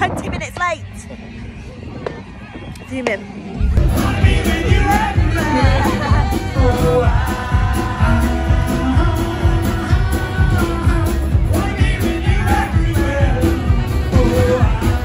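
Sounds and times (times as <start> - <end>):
live band playing through a pa: 3.8 - 15.0
man singing: 3.8 - 15.0.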